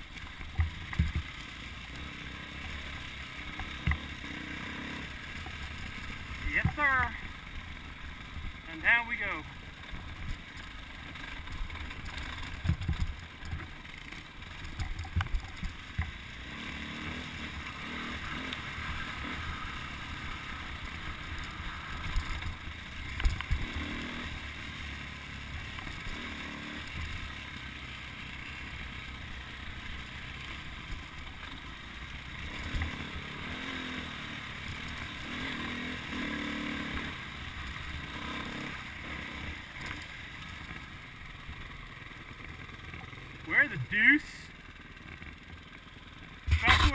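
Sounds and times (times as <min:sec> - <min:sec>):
dirt bike engine: 0:00.0 - 0:46.9
wind: 0:00.0 - 0:46.9
rattle: 0:10.1 - 0:16.2.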